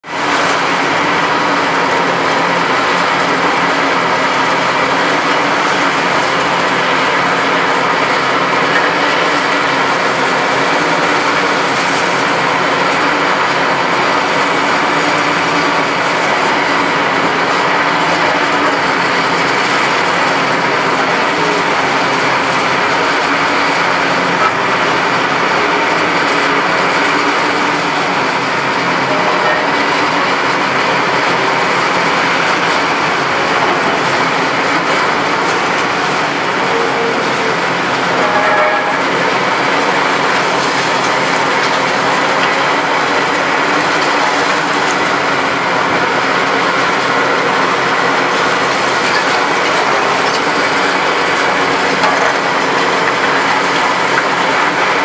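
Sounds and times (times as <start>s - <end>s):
excavator diesel engine under load: 0.0s - 55.0s
hydraulics working: 0.1s - 55.0s.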